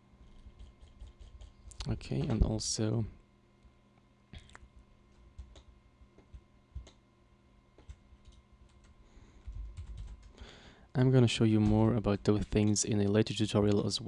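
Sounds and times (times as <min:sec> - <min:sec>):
faint steady hum: 0:00.0 - 0:14.0
keyboard and mouse clicks: 0:00.3 - 0:02.5, 0:05.4 - 0:07.0, 0:07.8 - 0:08.9.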